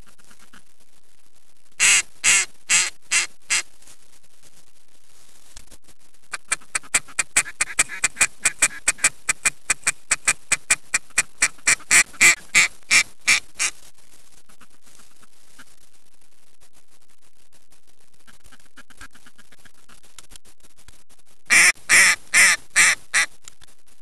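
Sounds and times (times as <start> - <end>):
duck call quacks: 1.8 - 3.7, 6.3 - 13.8, 21.5 - 23.3.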